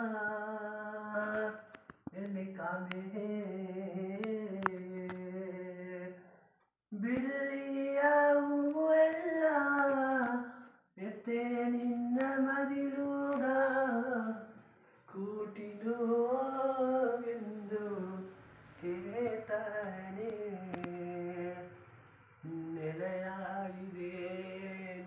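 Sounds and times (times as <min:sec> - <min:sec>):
young man singing unaccompanied: 0:00.0 - 0:06.3, 0:06.9 - 0:21.8, 0:22.4 - 0:25.0
singer breathing: 0:10.4 - 0:10.9.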